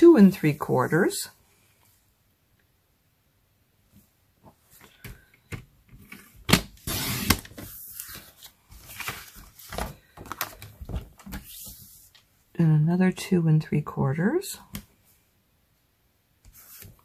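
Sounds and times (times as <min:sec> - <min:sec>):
cardstock rustling and clicking: 0:05.0 - 0:11.7.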